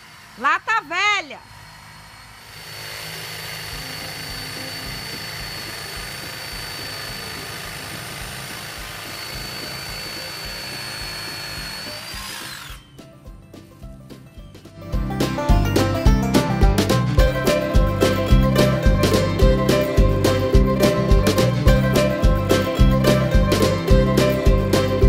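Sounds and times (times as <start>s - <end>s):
power tool motor whining: 0.0s - 13.1s.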